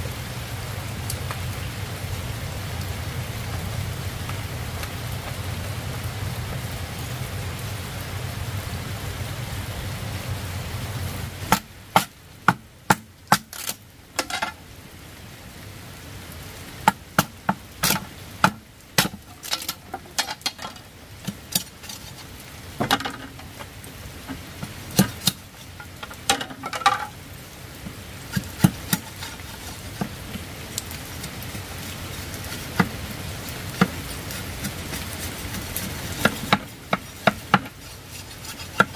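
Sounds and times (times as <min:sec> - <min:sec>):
steady hiss: 0:00.0 - 0:38.9
machete splitting bamboo: 0:12.9 - 0:14.5, 0:16.9 - 0:22.0, 0:25.0 - 0:27.1, 0:35.6 - 0:38.9.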